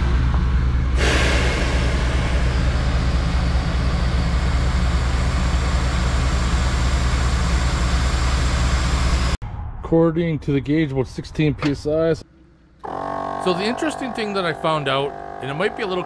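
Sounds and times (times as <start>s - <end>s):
air compressor droning: 0.0s - 9.4s, 12.8s - 16.0s.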